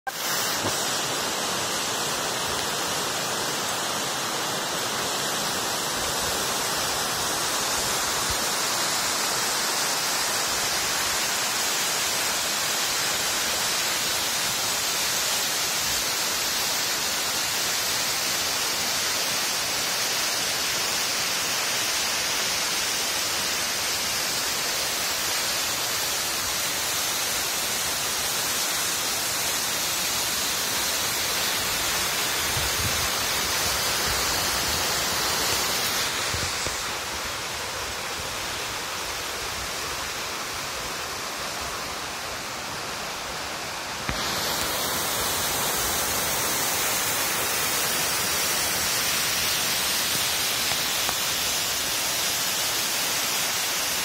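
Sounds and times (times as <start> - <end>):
water rushing over rocks: 0.1 - 54.0.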